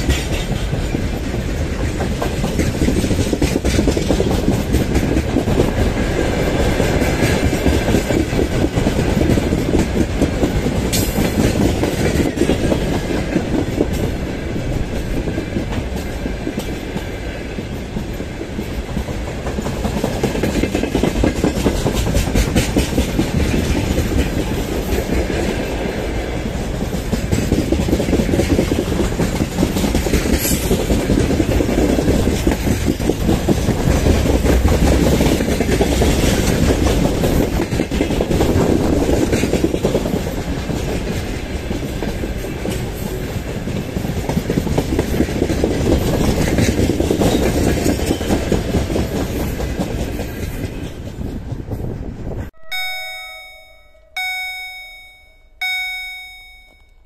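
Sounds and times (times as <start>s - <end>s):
wheels clattering over rail joints: 0.0s - 51.9s
train wagons rumbling past: 0.0s - 53.6s
electronic ringing: 52.6s - 57.0s.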